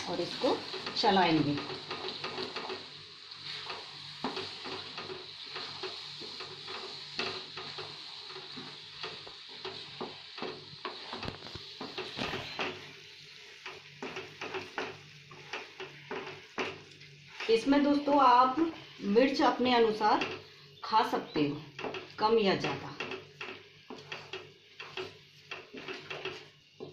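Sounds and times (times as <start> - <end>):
food sizzling in a pan: 0.0 - 26.9
wooden spatula scraping a pan: 0.0 - 26.9
spatula knocking against pan: 13.7 - 17.5.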